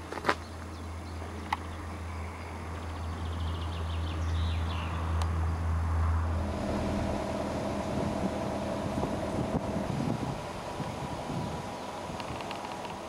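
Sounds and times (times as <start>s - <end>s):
low rumble: 3.0s - 12.2s.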